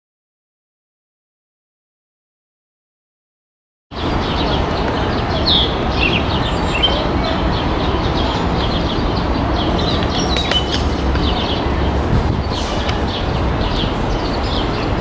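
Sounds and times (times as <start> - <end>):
low rumble of city traffic: 3.9 - 15.0
small birds chirping: 3.9 - 15.0.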